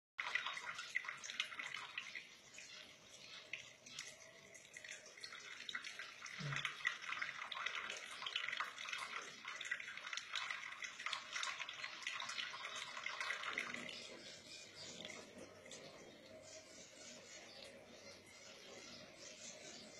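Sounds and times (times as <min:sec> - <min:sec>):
tap water splashing into sink: 0:03.5 - 0:13.9.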